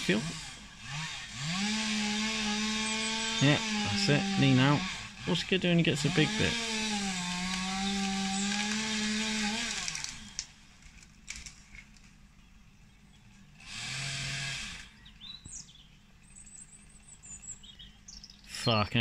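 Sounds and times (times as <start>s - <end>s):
chainsaw running: 0.0s - 12.1s, 13.5s - 18.1s
birds chirping: 0.0s - 19.0s.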